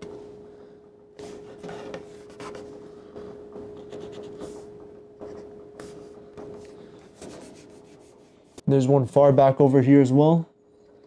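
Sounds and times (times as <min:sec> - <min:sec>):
steady background hum: 0:00.0 - 0:11.0
marker strokes on wood: 0:07.2 - 0:08.4.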